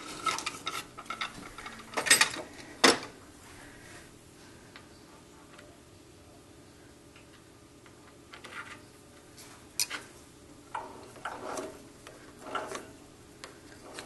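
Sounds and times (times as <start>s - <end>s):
rattling handling sounds: 0.0s - 3.1s.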